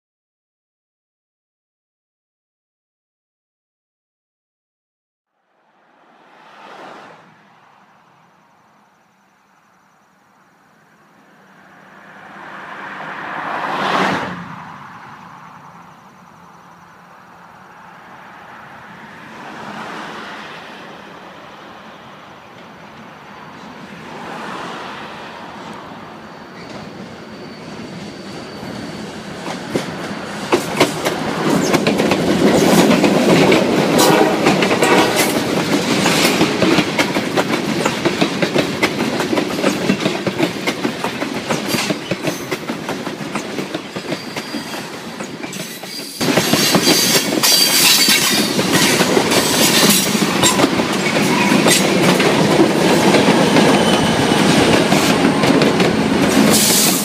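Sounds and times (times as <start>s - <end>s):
freight train passing: 5.4s - 57.0s
wheels clattering over rail joints: 26.6s - 57.0s.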